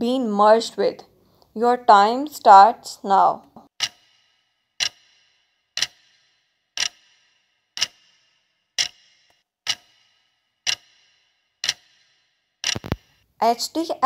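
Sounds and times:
clock ticks with ringing tail: 3.7 - 13.2.

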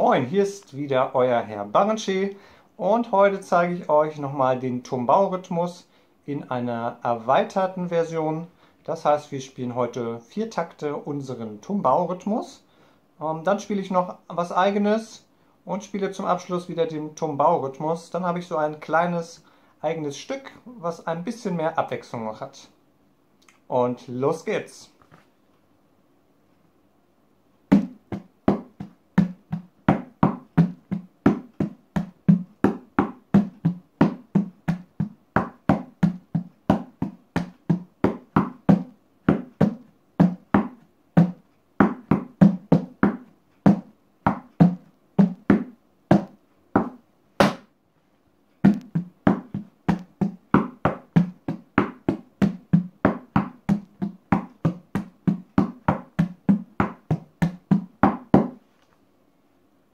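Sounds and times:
hand drumming on plastic bucket: 27.7 - 47.6, 48.6 - 58.6.

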